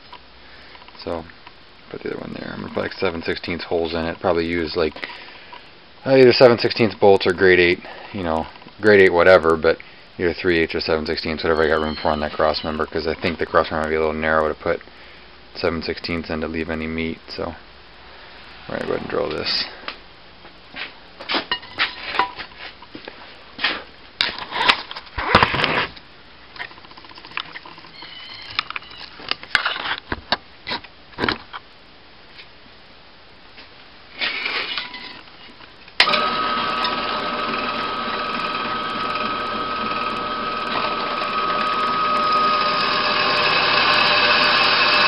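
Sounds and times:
drill press motor whining: 36.0s - 45.0s.

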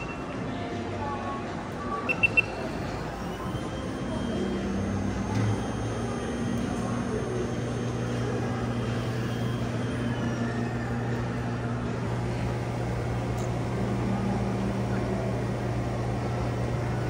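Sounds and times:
cotton candy machine motor hum: 4.3s - 17.0s.

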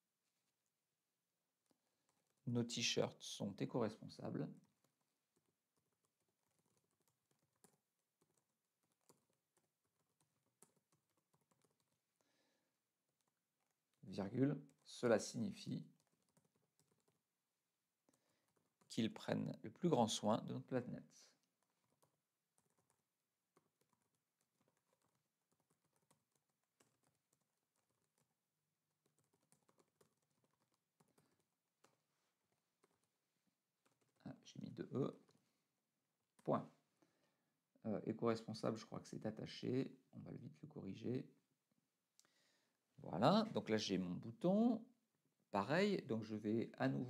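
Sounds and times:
keyboard typing: 4.5s - 20.2s, 21.3s - 34.3s.

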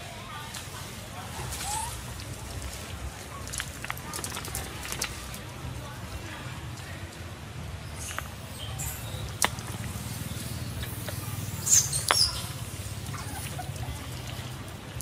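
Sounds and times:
monkey squealing: 1.4s - 2.2s, 10.5s - 14.4s.

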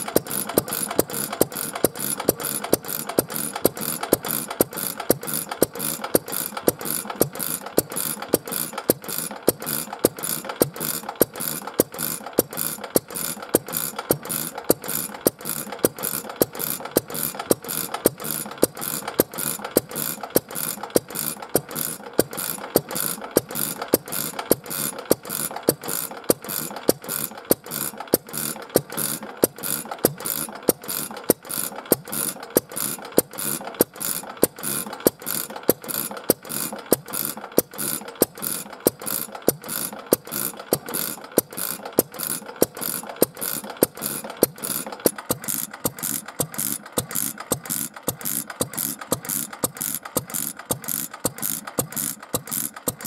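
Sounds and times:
stationary engine running: 0.0s - 53.0s.

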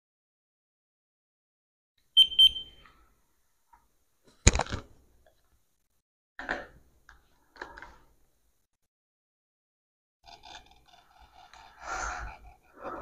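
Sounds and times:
thermometer double beep: 2.2s - 2.8s.

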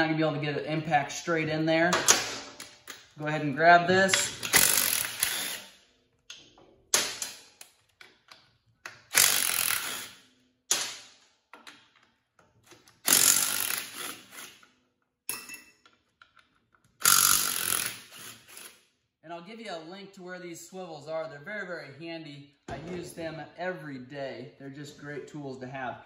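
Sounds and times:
impact gun hammering bolts: 1.9s - 3.0s, 6.9s - 7.6s.

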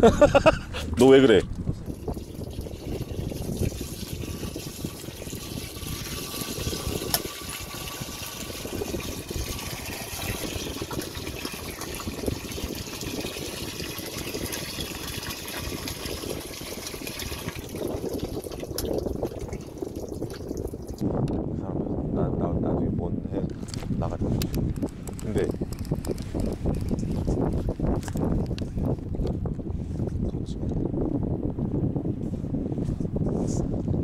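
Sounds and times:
water sloshing and splashing: 0.9s - 21.0s.

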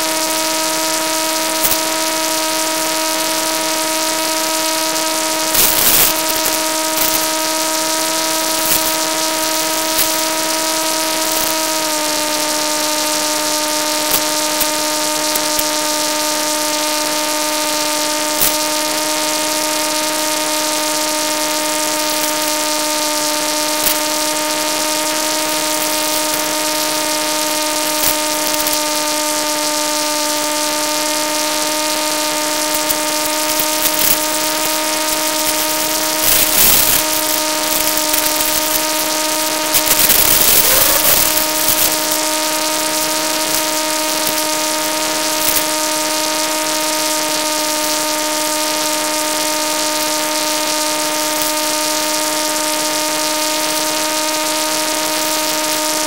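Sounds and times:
electric motor whine: 0.0s - 56.0s
faint crackles: 21.8s - 29.0s, 32.5s - 45.8s.

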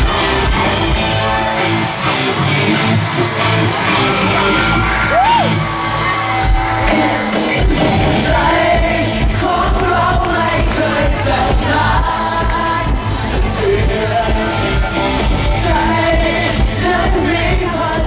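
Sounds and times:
live pop music with heavy beat: 0.0s - 18.0s
man singing into microphone: 8.2s - 18.0s.

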